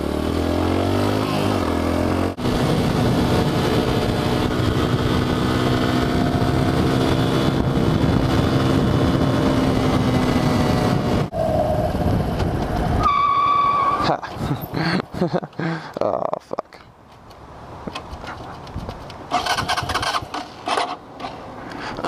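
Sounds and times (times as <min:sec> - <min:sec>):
motorcycle engine running: 0:00.0 - 0:12.9
wind rushing over microphone: 0:02.4 - 0:13.1.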